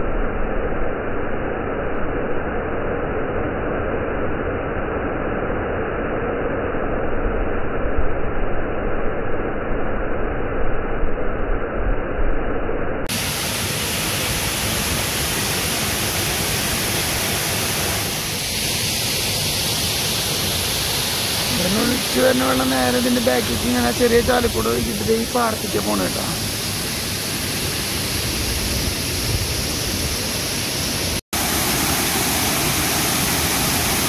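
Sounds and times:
waterfall pouring into pool: 13.1s - 23.6s, 31.4s - 34.0s.

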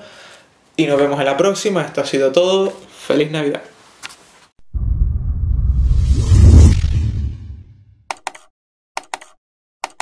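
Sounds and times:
deep bass rumble: 4.6s - 7.8s
whoosh: 4.7s - 7.9s.

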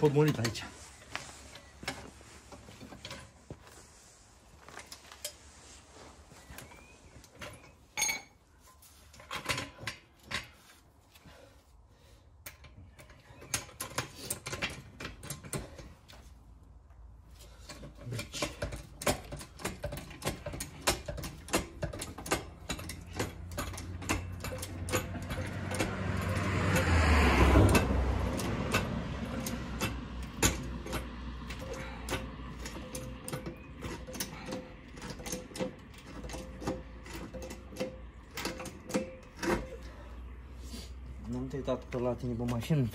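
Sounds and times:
floor jack pump clicking and clunking: 7.2s - 11.5s, 12.4s - 16.4s, 17.3s - 40.4s.

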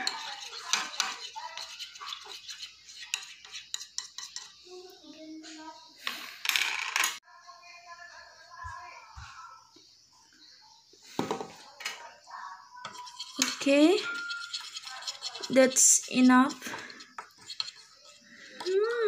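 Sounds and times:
plastic spoon scraping bowl: 0.0s - 4.6s, 12.9s - 19.0s.

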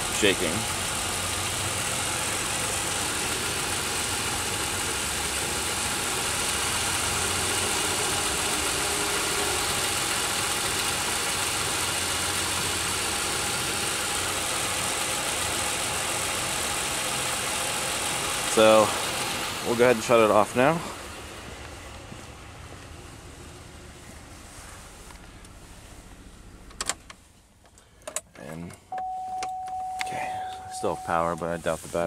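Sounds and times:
car engine idling roughly: 0.0s - 26.7s.

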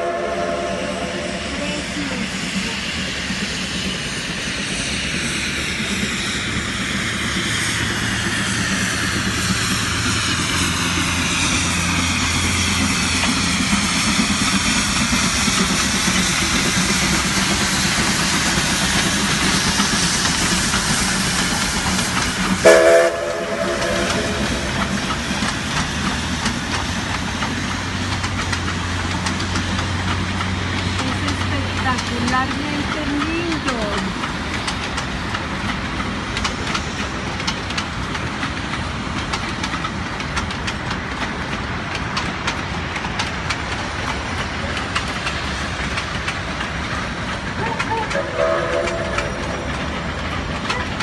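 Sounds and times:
train whistle toot: 0.0s - 1.8s, 22.6s - 24.7s, 48.1s - 49.6s
train rumbling on rails: 0.0s - 51.0s.

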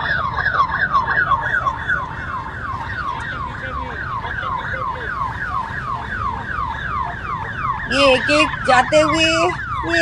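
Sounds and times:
low road rumble: 0.0s - 10.0s
siren yelping: 0.0s - 10.0s.

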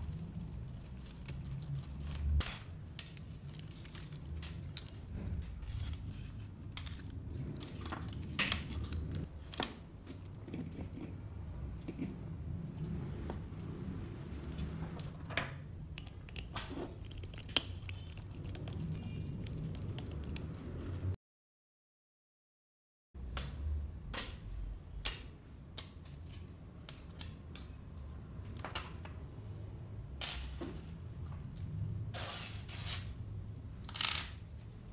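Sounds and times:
metal screws clicking and scraping: 33.8s - 34.5s.

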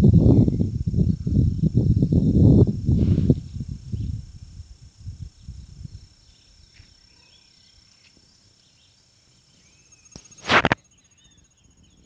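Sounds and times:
wind buffeting microphone: 0.0s - 6.6s
high insect drone: 0.0s - 12.0s
bird chirps: 5.3s - 12.0s.

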